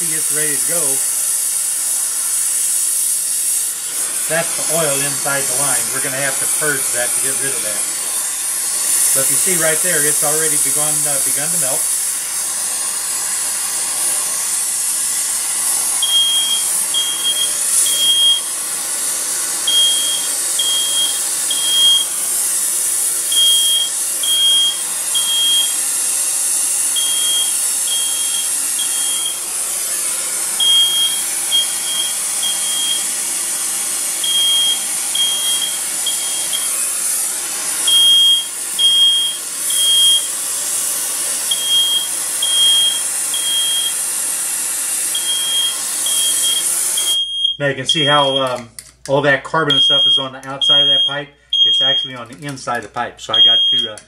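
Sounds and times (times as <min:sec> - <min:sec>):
torch flame hissing: 0:00.0 - 0:47.2
smoke alarm beeping: 0:16.0 - 0:18.6, 0:19.6 - 0:22.7, 0:23.3 - 0:26.0, 0:26.6 - 0:29.4, 0:30.6 - 0:33.2, 0:34.2 - 0:36.9, 0:37.8 - 0:40.4, 0:41.5 - 0:44.1, 0:45.1 - 0:48.6, 0:49.7 - 0:52.3, 0:53.3 - 0:54.0.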